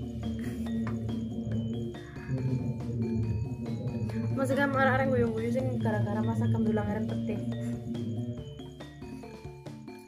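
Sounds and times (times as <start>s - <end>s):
steady low bass note: 0.0s - 8.5s.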